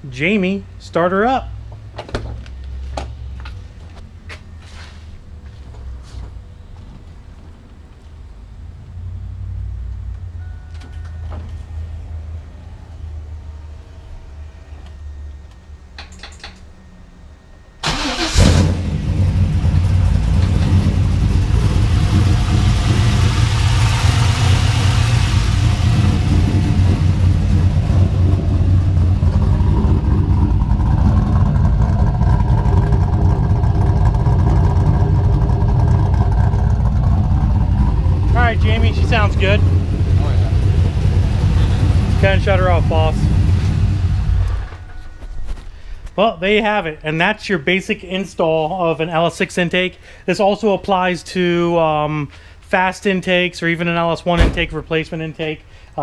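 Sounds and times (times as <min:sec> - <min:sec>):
car engine starting and idling: 0:17.8 - 0:49.2.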